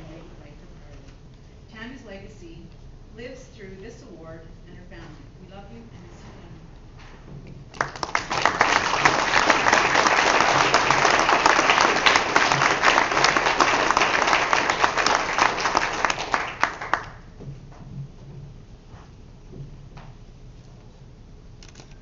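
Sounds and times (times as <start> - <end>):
audience applauding: 7.7 - 17.3.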